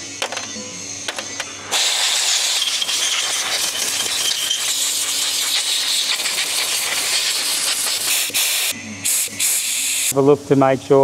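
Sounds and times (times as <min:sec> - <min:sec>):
spray jet hissing: 0:01.7 - 0:10.1.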